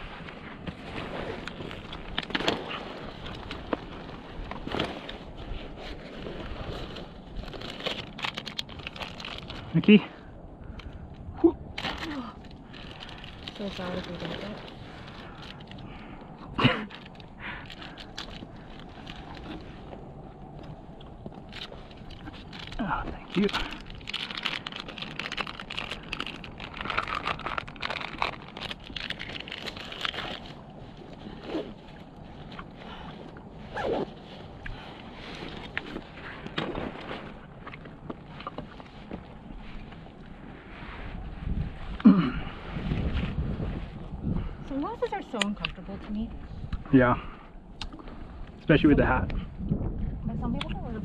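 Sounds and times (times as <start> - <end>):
wind buffeting microphone: 0.0 - 51.0
plastic wrapper crinkling: 7.3 - 9.8, 11.8 - 15.8, 21.4 - 30.7.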